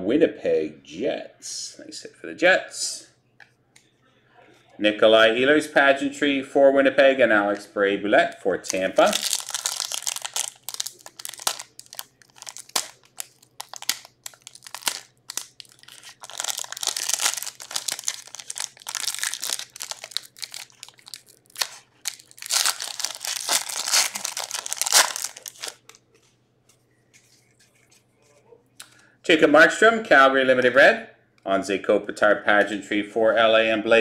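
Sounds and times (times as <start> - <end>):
foil wrapper crinkling and tearing: 8.7 - 26.0.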